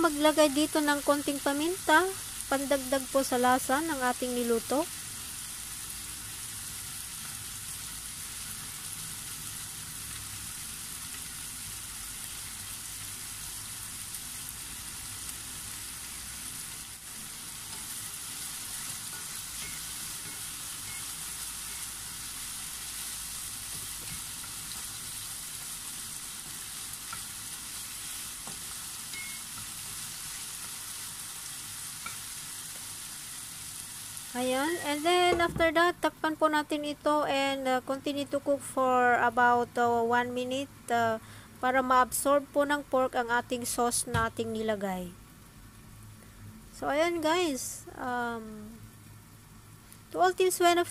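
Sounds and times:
pork sizzling in frying pan: 0:00.0 - 0:36.6.

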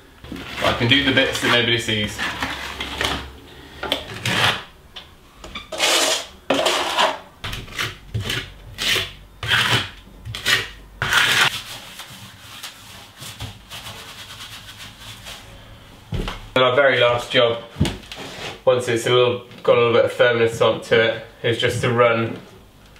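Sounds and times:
trowel scraping plaster on wall: 0:00.3 - 0:03.2, 0:04.1 - 0:04.7, 0:05.6 - 0:15.3.

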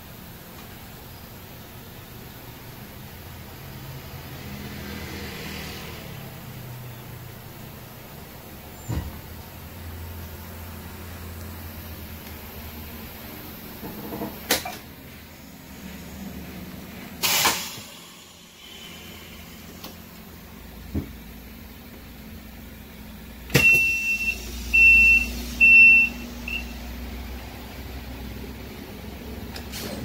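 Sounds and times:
bus engine idling: 0:00.0 - 0:04.3, 0:06.4 - 0:30.0
short air hiss: 0:17.2 - 0:19.8.

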